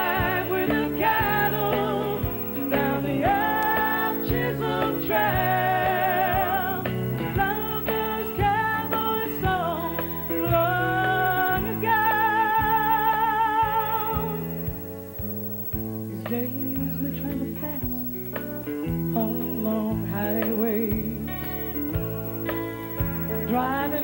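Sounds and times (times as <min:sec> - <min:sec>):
woman singing with vibrato: 0:00.0 - 0:15.1, 0:19.1 - 0:21.8, 0:23.2 - 0:24.0
bass line: 0:00.0 - 0:24.0
guitar: 0:00.0 - 0:24.0.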